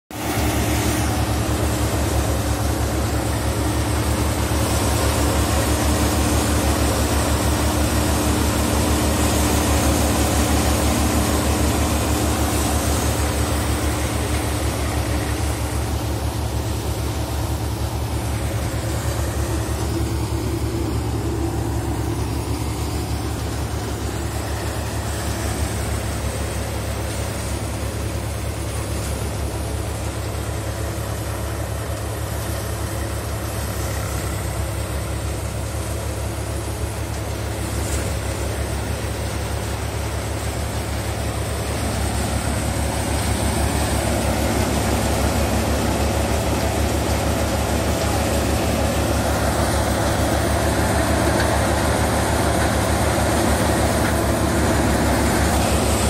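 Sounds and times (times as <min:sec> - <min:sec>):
tractor engine hum: 0:00.1 - 0:56.0
thresher drum and fans rushing: 0:00.2 - 0:30.8.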